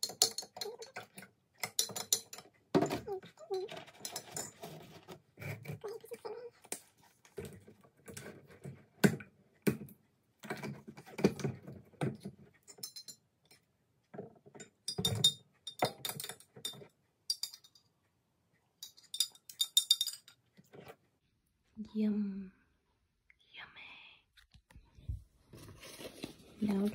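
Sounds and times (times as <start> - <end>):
spoon clinking against glass: 0.0 - 2.5, 12.7 - 13.2, 14.9 - 17.8, 18.8 - 20.4.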